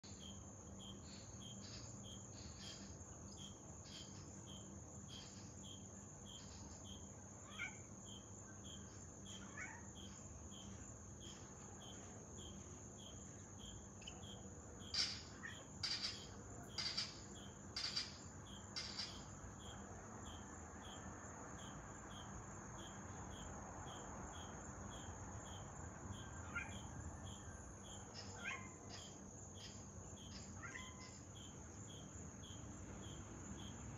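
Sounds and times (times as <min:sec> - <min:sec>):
crickets chirping: 0:00.0 - 0:33.9
high insect drone: 0:00.0 - 0:33.9
gecko clicking croaks: 0:14.8 - 0:19.3.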